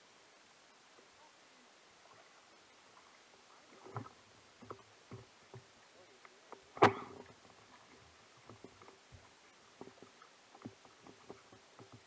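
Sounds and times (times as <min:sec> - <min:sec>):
knocks on an inflatable kayak: 0:06.8 - 0:07.1.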